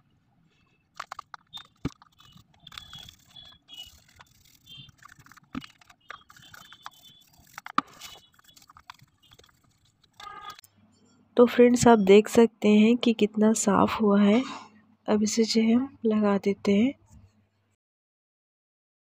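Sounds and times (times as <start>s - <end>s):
toothbrush scrubbing plastic: 0.9s - 10.6s.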